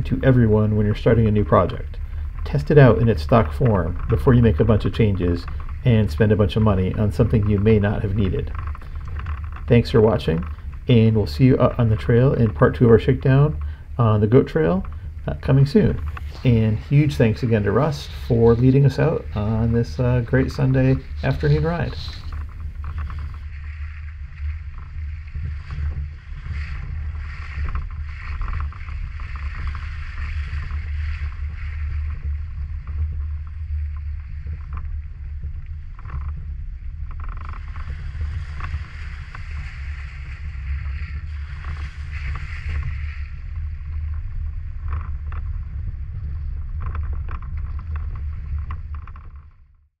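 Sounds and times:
tyres crackling on dirt: 0.0s - 34.1s
wind on microphone: 0.0s - 49.9s.

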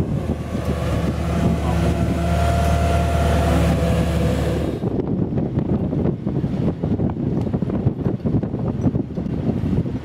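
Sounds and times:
crane engine and hydraulics humming: 0.0s - 5.1s.

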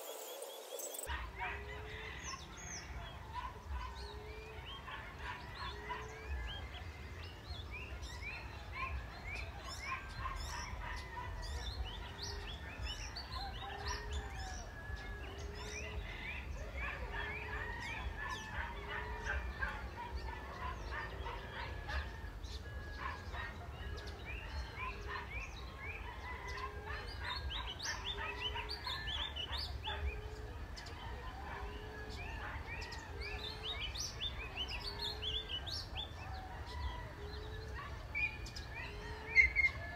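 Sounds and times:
small birds chirping and trilling: 0.0s - 39.9s
dove cooing: 8.3s - 39.9s.

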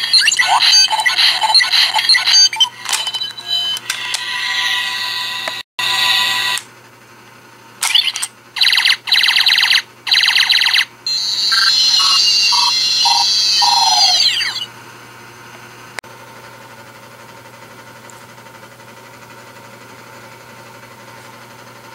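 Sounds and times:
toy electronic sound effects: 0.0s - 6.6s, 7.8s - 14.7s
short descending beeps: 11.1s - 14.7s.

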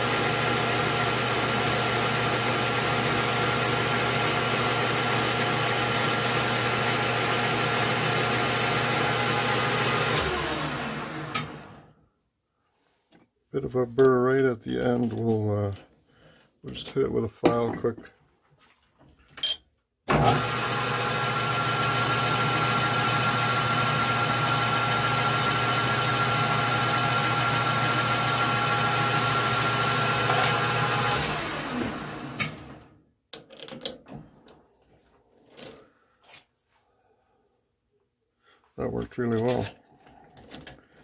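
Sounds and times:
metal lathe humming: 0.0s - 11.7s, 20.2s - 32.8s.

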